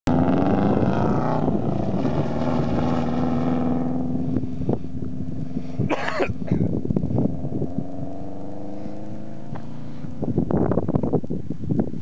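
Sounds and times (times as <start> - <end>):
rally car engine at high revs: 0.1 - 10.4.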